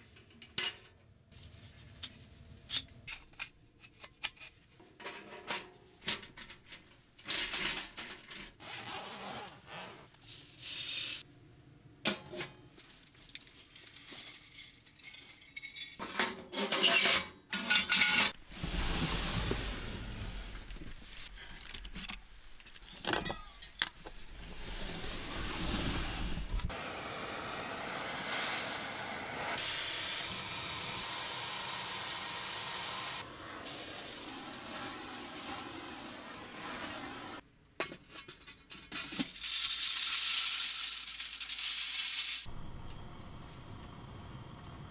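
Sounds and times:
butane torch hissing: 0:24.4 - 0:37.4.

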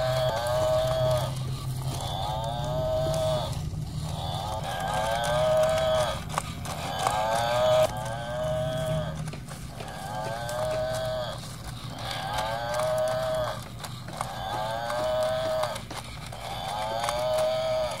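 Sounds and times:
toy motor whirring: 0:00.0 - 0:18.0
toy speaker playing moo: 0:00.0 - 0:18.0.

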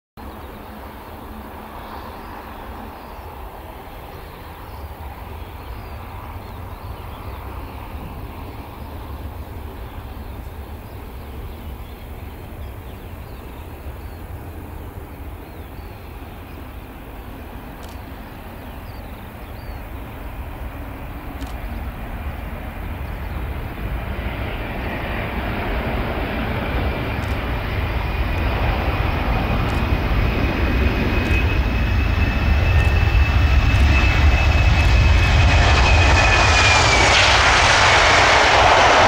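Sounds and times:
distant jet aircraft rumble: 0:00.2 - 0:39.0.

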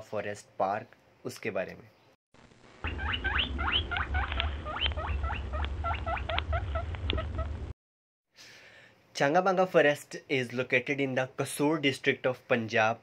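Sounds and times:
animal high chirping: 0:02.8 - 0:07.5.

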